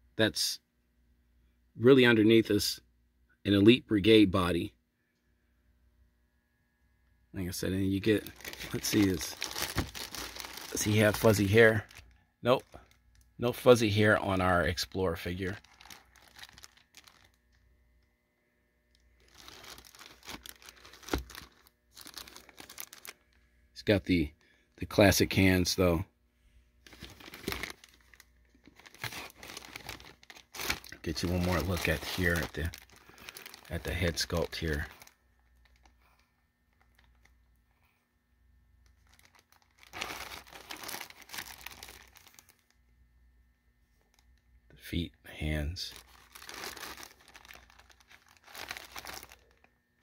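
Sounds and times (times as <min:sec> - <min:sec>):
plastic bag crinkling: 0:08.0 - 0:13.3, 0:15.3 - 0:17.6, 0:18.9 - 0:23.4, 0:26.8 - 0:37.4, 0:38.9 - 0:42.8, 0:45.9 - 0:50.0.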